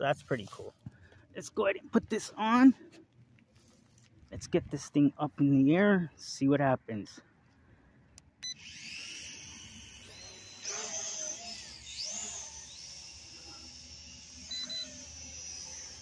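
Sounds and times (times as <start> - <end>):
drone propellers whining: 8.3 - 16.0
short beep: 14.5 - 15.0.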